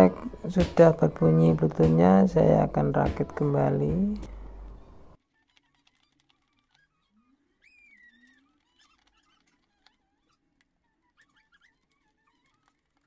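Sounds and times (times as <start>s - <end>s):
faint bird calls: 4.8s - 12.7s.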